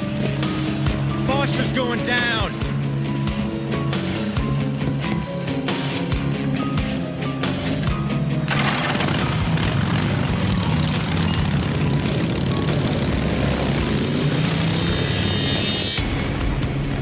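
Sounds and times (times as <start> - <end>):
motorcycle engines revving: 8.5 - 16.0.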